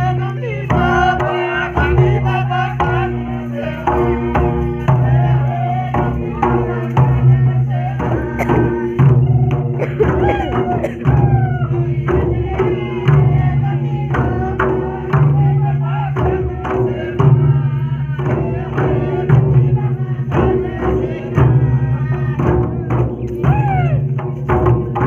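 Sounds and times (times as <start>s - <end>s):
barrel hand drums beating: 0.0s - 25.0s
folk singing: 0.0s - 25.0s.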